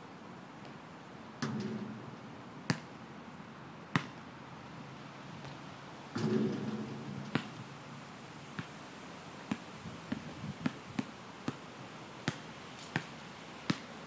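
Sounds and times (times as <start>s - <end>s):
basketball bouncing on asphalt: 1.4s - 3.0s, 3.9s - 4.2s, 6.2s - 7.8s, 9.4s - 11.6s, 12.2s - 13.9s.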